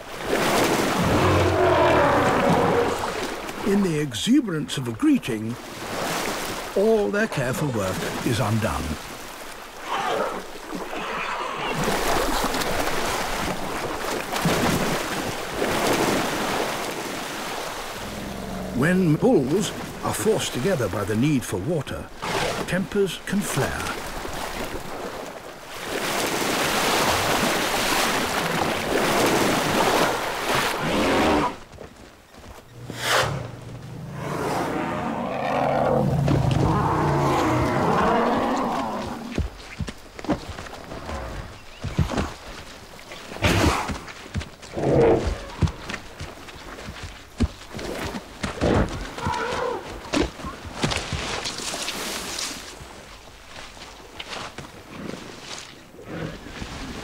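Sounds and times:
elephants splashing through water: 0.0 - 3.7, 7.5 - 21.0, 22.0 - 31.7, 33.0 - 57.0
elephants roaring: 0.9 - 3.3, 32.8 - 39.4.

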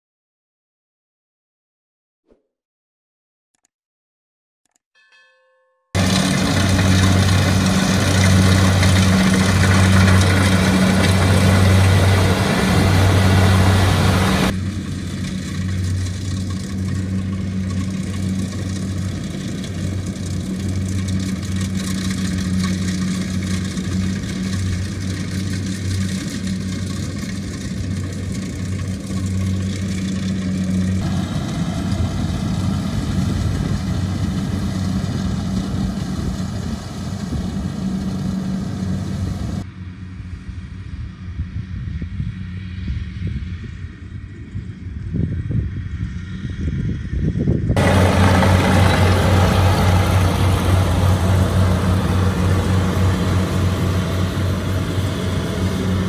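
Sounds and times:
combine harvester running: 6.0 - 41.3, 47.7 - 56.0.

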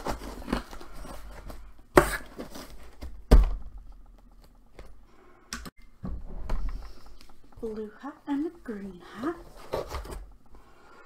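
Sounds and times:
paper and cardboard rustling: 0.0 - 3.2, 9.2 - 10.3.

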